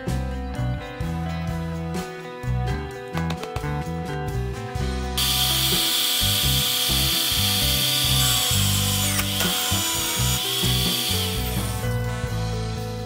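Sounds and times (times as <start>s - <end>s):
electric drill drilling into metal: 5.2s - 12.0s.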